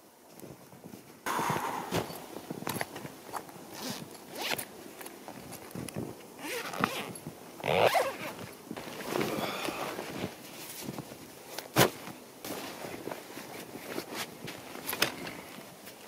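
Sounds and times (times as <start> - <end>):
canvas rustling: 0.4 - 16.0
zipper pulled open: 3.7 - 4.6, 6.4 - 10.0.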